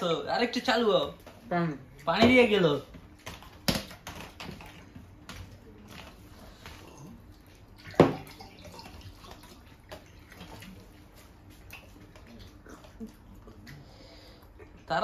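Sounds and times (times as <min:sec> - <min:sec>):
eating sounds: 0:06.4 - 0:14.9.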